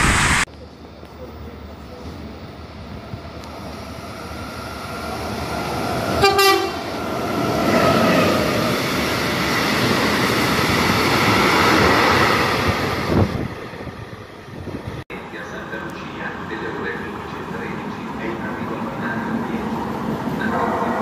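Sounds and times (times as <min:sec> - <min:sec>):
train horn blast: 0:06.2 - 0:06.9.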